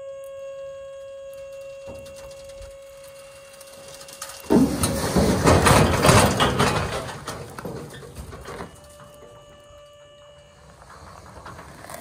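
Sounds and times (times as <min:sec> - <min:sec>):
steady hum: 0:00.0 - 0:12.0
log scraping down steel bed: 0:01.6 - 0:12.0
log crashing onto gravel: 0:01.8 - 0:08.8.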